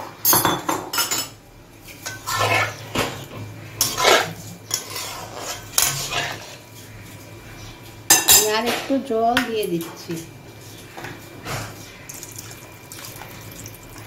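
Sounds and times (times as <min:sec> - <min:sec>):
metal spatula scraping metal pan: 0:02.0 - 0:02.9, 0:03.8 - 0:06.7.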